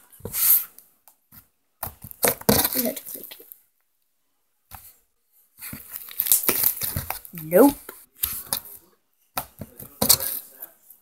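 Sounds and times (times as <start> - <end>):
slime crackling and popping: 6.0 - 7.4.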